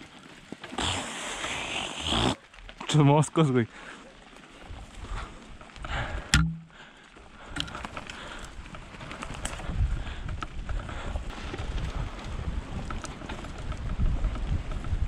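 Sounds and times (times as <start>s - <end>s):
bike tyres rumbling on dirt trail: 0.0s - 15.0s
sharp knock: 6.4s - 6.7s.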